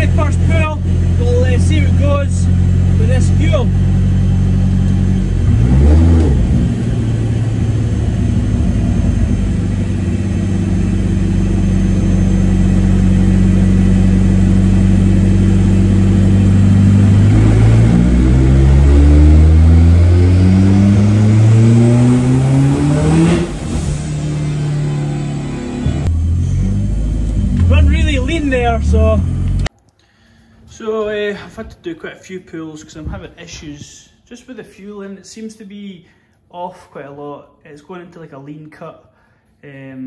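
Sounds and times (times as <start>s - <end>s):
car engine revving on dyno: 0.0s - 29.7s
high whine: 0.0s - 29.7s.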